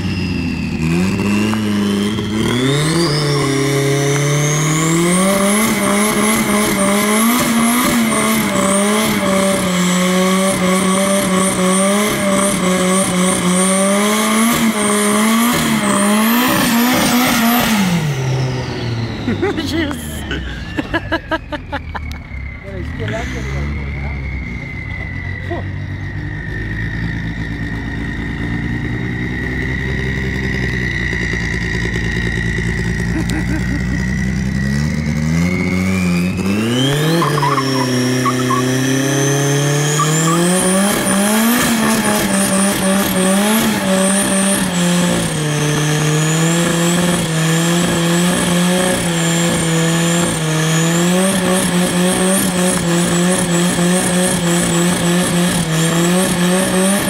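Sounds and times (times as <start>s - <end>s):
car engine revving: 0.0s - 57.0s
tyres squealing: 36.8s - 44.4s.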